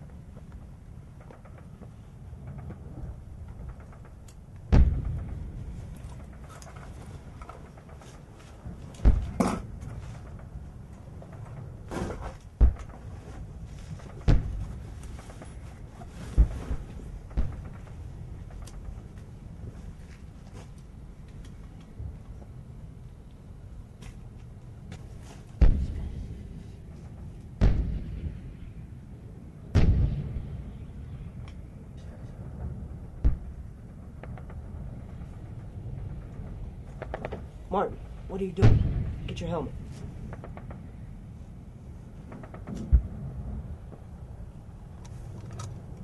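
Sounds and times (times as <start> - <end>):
heavy booms with low rumble: 1.4 - 6.5, 8.6 - 10.7, 11.3 - 13.2, 14.0 - 15.6, 16.2 - 19.8, 25.6 - 41.3, 42.2 - 44.9.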